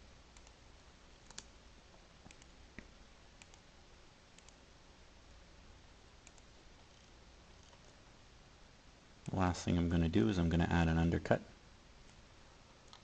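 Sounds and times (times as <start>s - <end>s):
faint computer mouse clicks: 0.4s - 0.6s, 1.2s - 1.5s, 2.2s - 3.6s, 4.4s - 4.6s, 6.2s - 8.0s.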